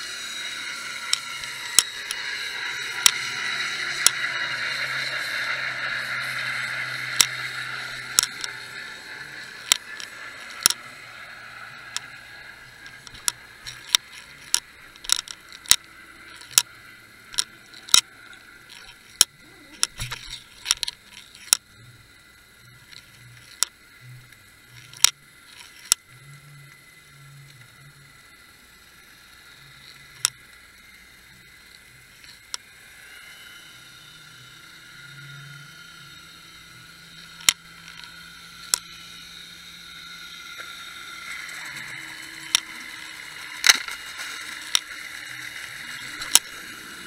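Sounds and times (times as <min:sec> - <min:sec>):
hiss: 0:00.0 - 0:14.4, 0:27.0 - 0:47.0
faint high whine: 0:00.0 - 0:47.0
pulsing low hum: 0:00.0 - 0:47.0
sharp underwater clicks: 0:00.1 - 0:21.8, 0:37.1 - 0:47.0.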